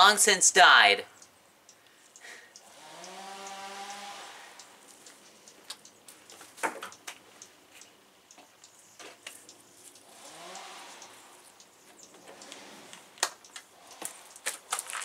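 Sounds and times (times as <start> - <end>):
light clicks and ticks: 1.2 - 4.0, 4.6 - 15.0
electric chainsaw motor whine: 2.6 - 4.6, 10.0 - 11.4.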